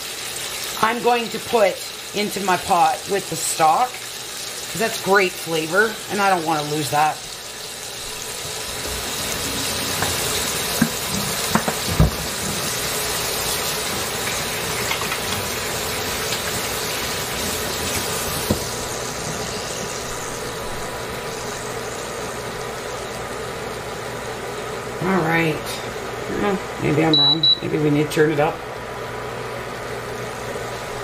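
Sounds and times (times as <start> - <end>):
chicken sizzling in a pan: 0.0 - 25.8.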